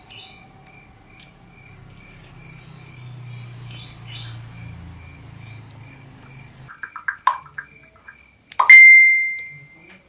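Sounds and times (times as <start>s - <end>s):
night creatures chirping: 0.0s - 9.1s.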